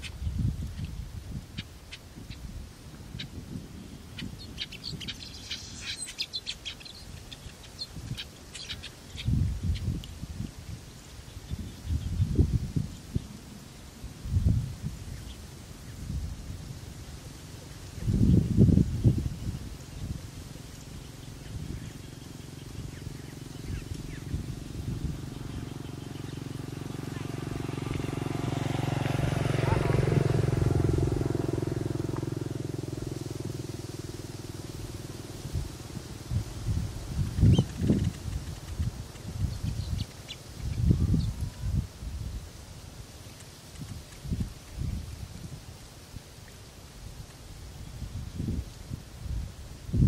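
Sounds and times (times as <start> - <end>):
small birds chirping: 0.0 - 16.2, 17.1 - 41.8, 43.1 - 45.1
engine hum: 2.6 - 45.5
low rumble: 21.4 - 40.0.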